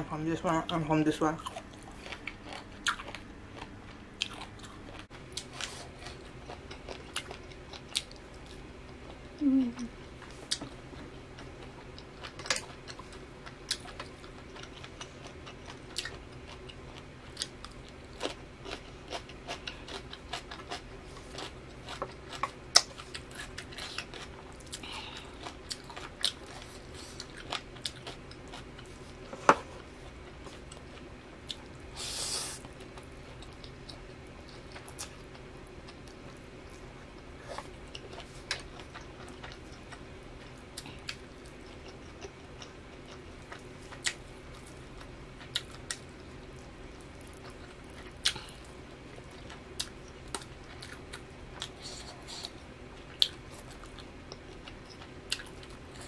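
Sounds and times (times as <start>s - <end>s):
faint low hum: 0.0s - 56.0s
person chewing food: 1.4s - 56.0s.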